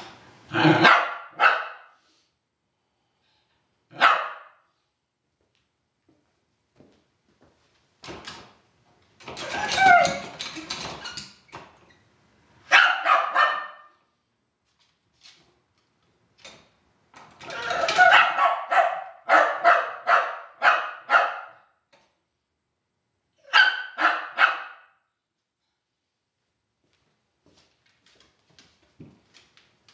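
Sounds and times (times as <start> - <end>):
dog barking inside crate: 0.8 - 2.0, 3.9 - 4.7, 12.6 - 14.1, 17.6 - 21.8, 23.4 - 25.0.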